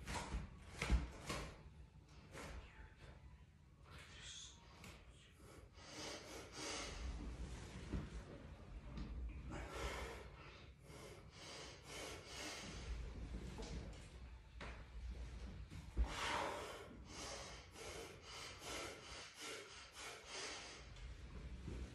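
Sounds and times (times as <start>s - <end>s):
man breathing hard: 4.2s - 7.4s, 9.3s - 13.3s, 16.0s - 21.7s.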